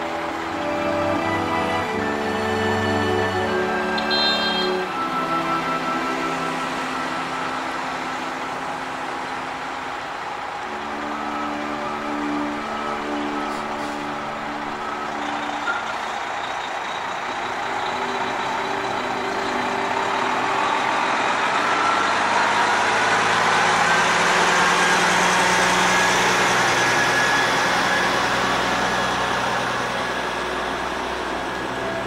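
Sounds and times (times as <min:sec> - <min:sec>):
truck diesel engine running: 0:00.0 - 0:32.0
truck tyres rolling on road: 0:03.5 - 0:32.0.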